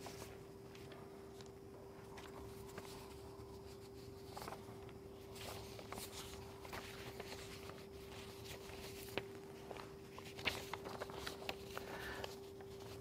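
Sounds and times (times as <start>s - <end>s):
steady hum: 0.0s - 13.0s
paper sheets rustling: 2.1s - 13.0s.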